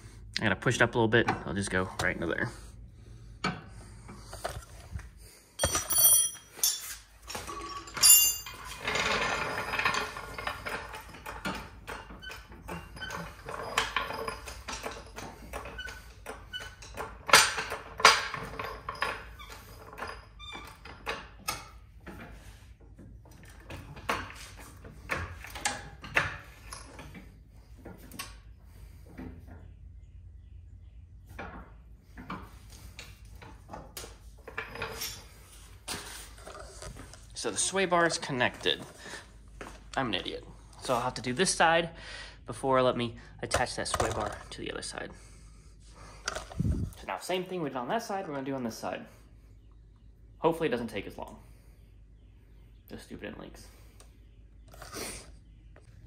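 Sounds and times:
bright metallic rings: 5.6 - 8.7
metal clinks and scrapes of tools: 5.6 - 22.3, 34.4 - 37.3.

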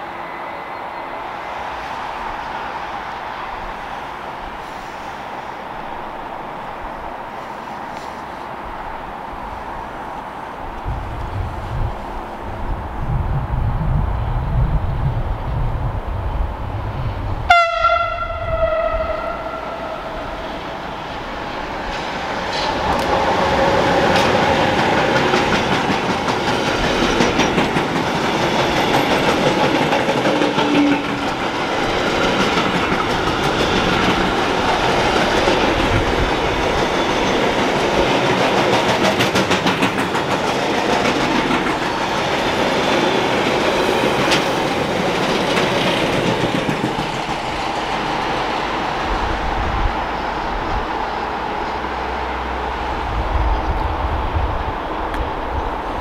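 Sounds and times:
train passing with rumble: 0.0 - 56.0
train horn: 17.5 - 20.8
wheels clattering over rails: 20.6 - 48.2.

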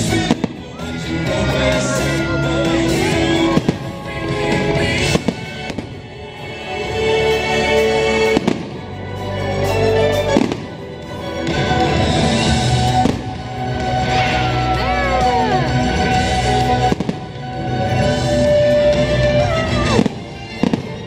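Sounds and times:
firework bangs: 0.0 - 1.0, 3.0 - 6.9, 7.8 - 9.0, 10.2 - 14.5, 15.8 - 21.0
music playing: 0.0 - 21.0.

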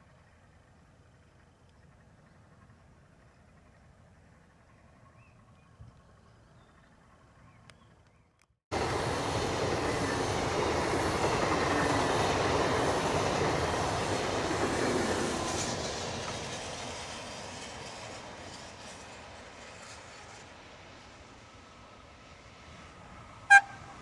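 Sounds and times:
train wheels rolling on rails: 8.7 - 23.9.

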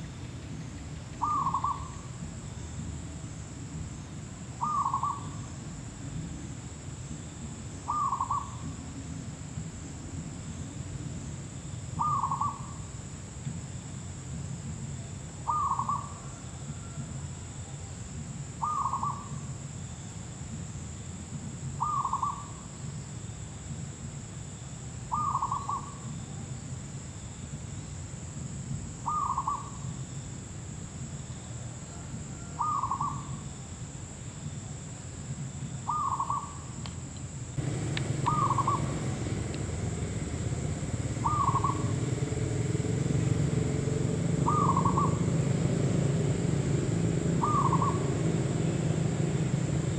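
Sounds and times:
low background noise: 0.0 - 49.9
dove cooing: 1.2 - 2.0, 4.6 - 5.4, 7.9 - 8.6, 12.0 - 12.8, 15.5 - 17.0, 18.6 - 19.3, 21.8 - 22.5, 29.1 - 29.7, 32.4 - 33.3, 37.6 - 42.2, 44.4 - 45.3, 47.4 - 48.2
high-pitched whine: 37.6 - 49.9.

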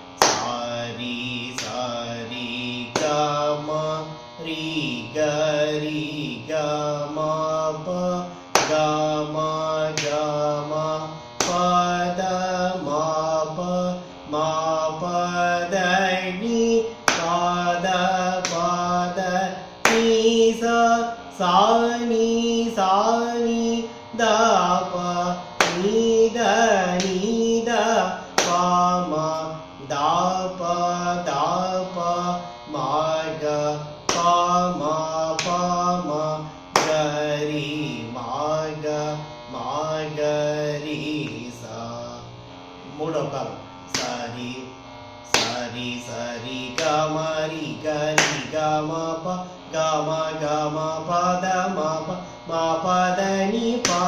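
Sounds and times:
sharp hand claps: 0.2 - 0.6, 1.5 - 1.8, 2.9 - 3.2, 8.5 - 8.9, 9.9 - 10.2, 11.4 - 11.8, 17.1 - 17.4, 18.3 - 18.7, 19.8 - 20.2, 25.6 - 26.0, 27.0 - 27.2, 28.3 - 28.8, 34.1 - 34.4, 35.4 - 35.6, 36.7 - 37.1, 43.9 - 44.2, 45.3 - 45.7, 46.8 - 47.0, 48.1 - 48.6, 53.8 - 54.0
man singing vocal exercise: 0.2 - 54.0.

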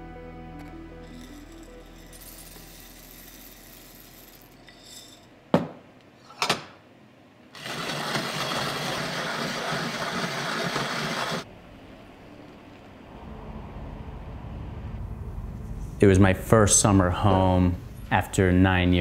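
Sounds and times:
coffee grinder grinding beans: 1.0 - 5.3, 7.6 - 11.5.

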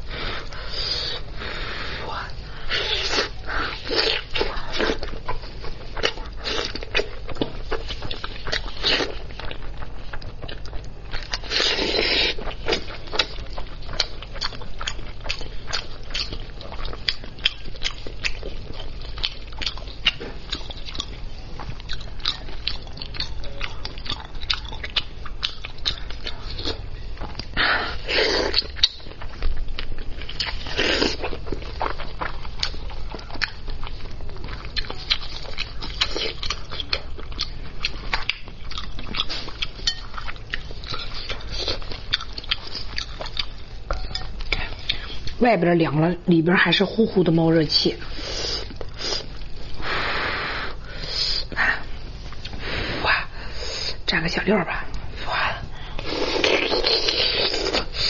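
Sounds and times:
person chewing and biting: 2.2 - 45.4, 55.8 - 58.0.

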